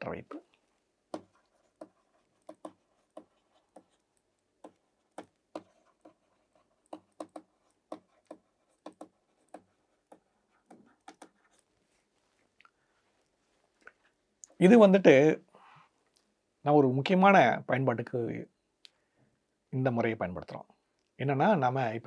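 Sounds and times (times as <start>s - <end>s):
pen tapping and scratching on tablet: 1.0s - 11.7s.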